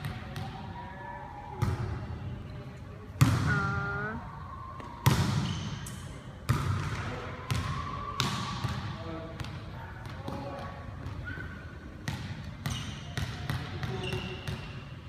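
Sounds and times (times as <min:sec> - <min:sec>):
volleyball slaps echoing in gym: 0:00.0 - 0:02.3, 0:03.1 - 0:15.0
person shouting: 0:03.4 - 0:04.2.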